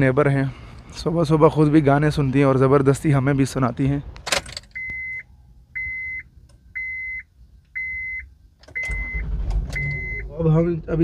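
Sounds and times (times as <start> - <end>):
car warning chime beeping: 4.7 - 10.3
low rumble: 8.8 - 11.0.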